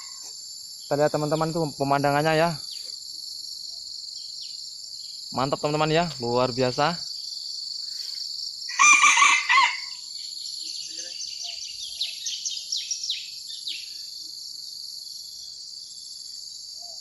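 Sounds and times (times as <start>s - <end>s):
high-pitched insect drone: 0.0s - 17.0s
rooster crowing: 8.7s - 10.0s.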